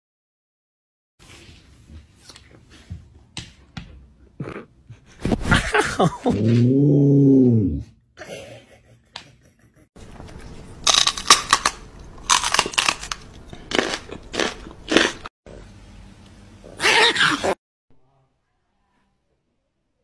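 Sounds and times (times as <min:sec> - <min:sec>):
sharp irregular crunching: 0:10.8 - 0:15.3.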